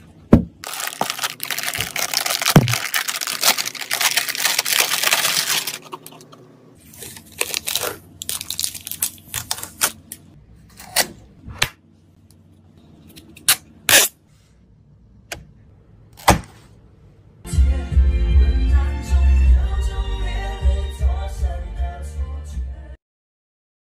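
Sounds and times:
plastic film rustling and tearing: 0.6 - 6.2, 6.8 - 10.2
heavy bass music: 17.4 - 23.0.

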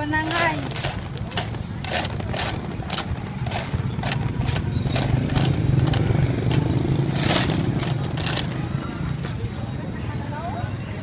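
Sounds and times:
sharp clicks and clacks: 0.0 - 8.6
engine rumbling: 0.0 - 10.2.

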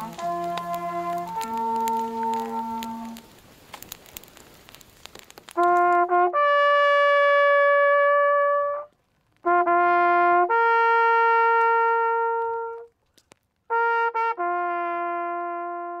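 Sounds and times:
brass horn calls: 0.0 - 3.2, 5.6 - 12.9, 13.7 - 16.0.

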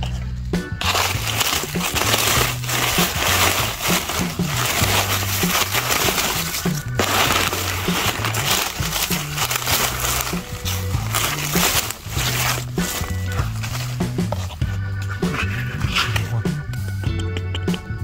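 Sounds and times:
metal tongs on leaves: 0.8 - 14.4
dry leaves crunching and rustling: 0.8 - 16.1.

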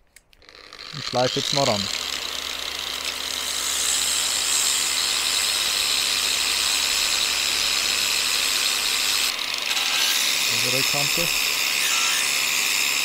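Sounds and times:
angle grinder polishing stone: 0.4 - 13.0.

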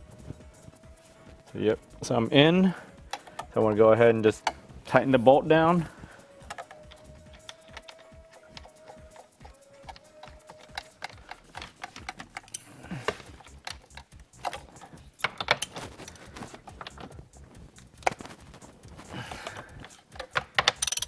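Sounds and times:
ratchet and socket clicking: 3.0 - 3.6, 4.3 - 4.7, 6.2 - 21.0.

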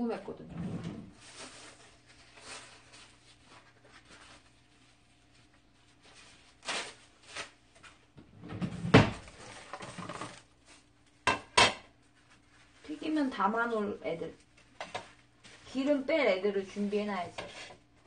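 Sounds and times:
kitchenware clatter: 11.2 - 11.9.

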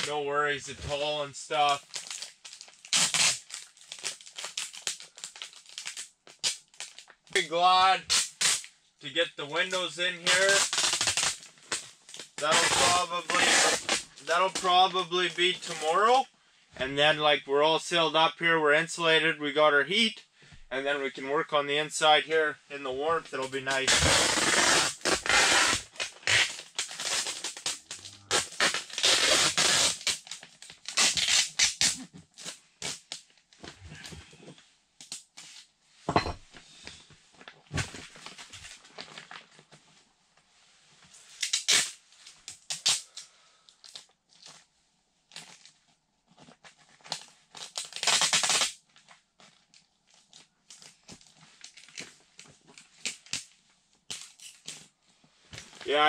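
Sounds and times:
plastic sheeting crinkling: 1.0 - 8.6, 9.6 - 16.2, 23.4 - 34.5, 36.7 - 56.0
plastic tearing: 1.6 - 7.4, 9.7 - 14.7, 23.8 - 34.2, 37.7 - 39.7, 41.2 - 44.6, 45.3 - 53.5, 54.1 - 54.9.

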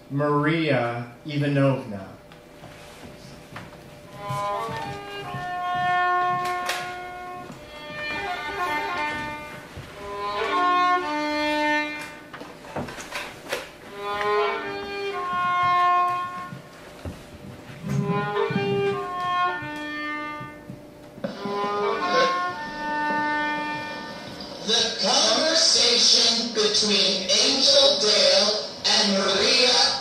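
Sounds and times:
violin playing slow melody: 3.9 - 13.0, 13.8 - 27.4.

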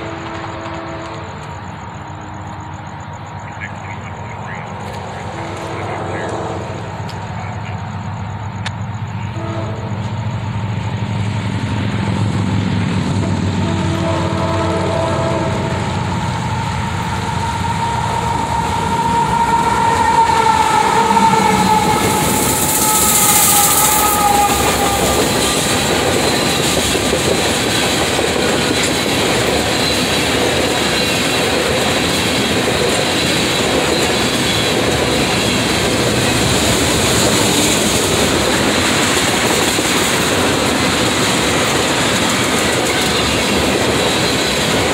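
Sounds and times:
train horn: 0.0 - 1.9, 4.9 - 7.9, 9.0 - 10.8, 12.9 - 31.3, 33.2 - 40.0
train wheel clatter: 0.0 - 7.6, 8.6 - 44.9
diesel locomotive passing: 0.0 - 44.9.

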